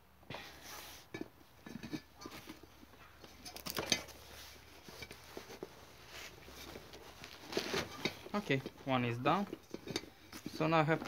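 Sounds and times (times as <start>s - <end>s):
metal rim knocking and clinking: 1.1s - 4.2s, 7.9s - 11.0s.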